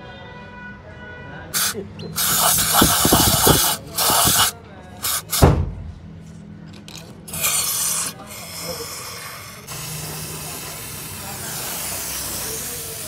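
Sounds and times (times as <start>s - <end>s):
aerosol spray hissing: 1.6s - 5.5s, 7.3s - 13.0s
low thuds: 5.4s - 6.2s.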